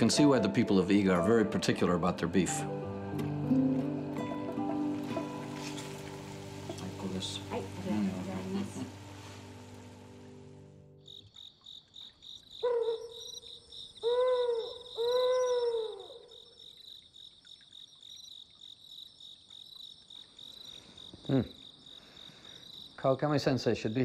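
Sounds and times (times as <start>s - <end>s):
crickets chirping: 4.2s - 24.0s
low hoots: 12.6s - 16.6s.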